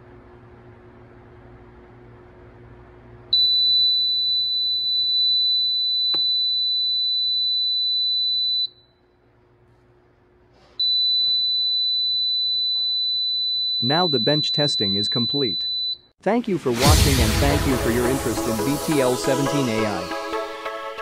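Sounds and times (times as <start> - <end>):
high-pitched warning beeper tone: 16.5 - 20.4.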